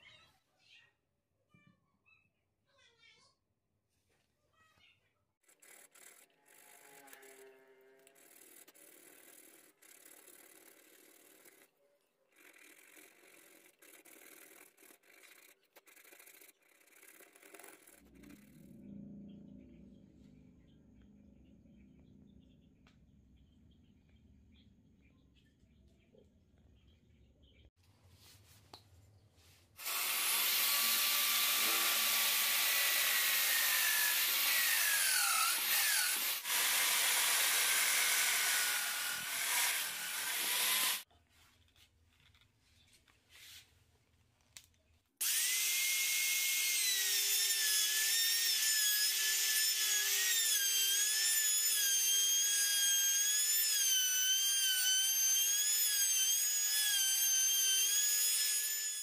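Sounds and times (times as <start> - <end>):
router cutting wood: 5.6 - 8.8, 29.8 - 41.1, 45.2 - 59.0.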